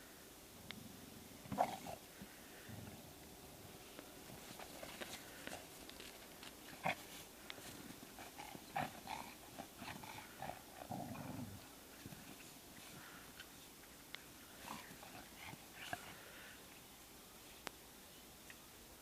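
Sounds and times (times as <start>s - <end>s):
dogs growling and grunting: 1.4s - 2.1s, 8.1s - 13.0s, 14.6s - 16.2s
scuffling in snow: 3.8s - 8.4s.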